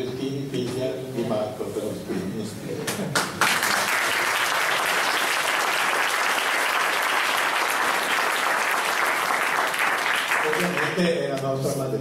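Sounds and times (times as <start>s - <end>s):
audience applauding: 3.2s - 11.0s.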